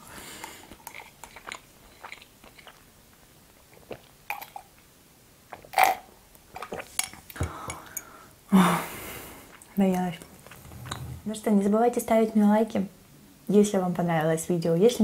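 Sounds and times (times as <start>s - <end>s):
soft chewing: 0.3s - 4.9s, 9.4s - 11.3s.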